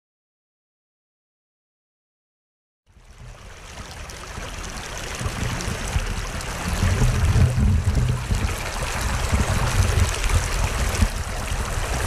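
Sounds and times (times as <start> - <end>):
water rushing over rocks: 3.4 - 12.0.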